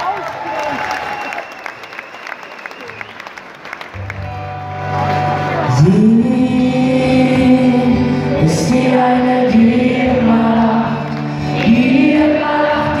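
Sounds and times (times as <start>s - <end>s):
acoustic guitar: 3.9s - 13.0s.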